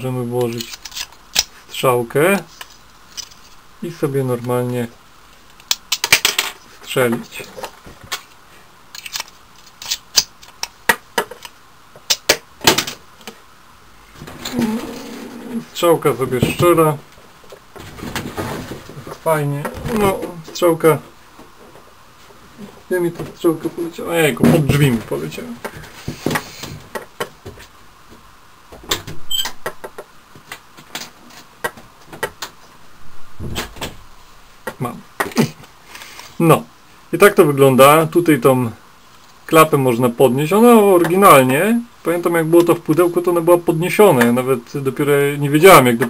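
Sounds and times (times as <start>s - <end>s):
short squeak: 29.3s - 29.6s.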